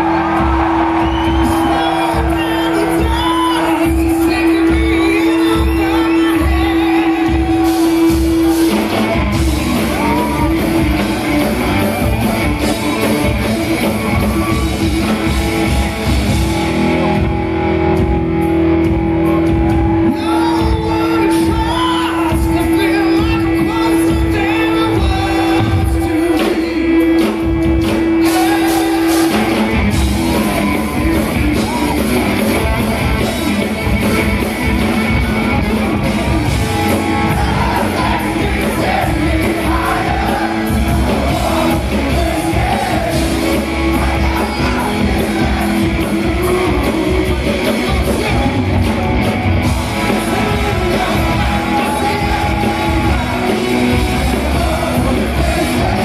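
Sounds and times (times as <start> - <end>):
bass guitar: 0.0 - 56.0
drums: 0.0 - 56.0
electric guitar: 0.0 - 56.0
man singing lead: 1.0 - 13.2, 19.8 - 29.8, 34.4 - 49.1, 49.7 - 56.0.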